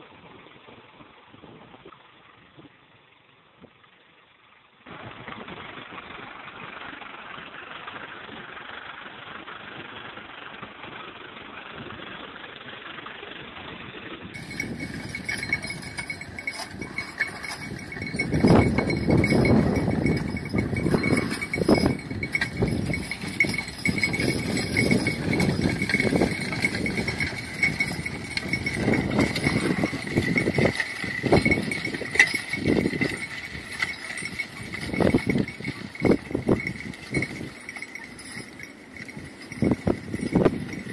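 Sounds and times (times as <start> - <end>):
harness jingling and plow clinking: 14.4 - 40.9
hoof steps: 14.4 - 40.9
muffled tractor engine running: 14.4 - 40.9
steady high ring: 14.4 - 40.9.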